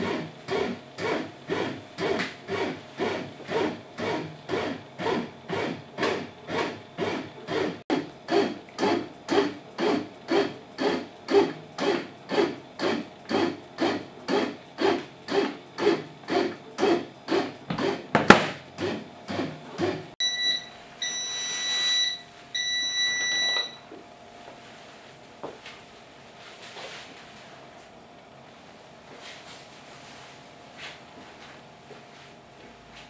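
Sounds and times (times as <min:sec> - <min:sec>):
bread maker kneading dough: 0:00.0 - 0:20.2.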